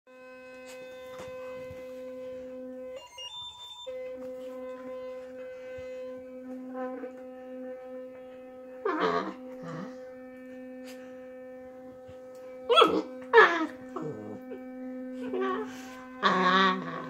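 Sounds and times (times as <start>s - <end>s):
electric toothbrush buzzing: 0.1s - 17.0s
higher electronic tone: 0.1s - 17.0s.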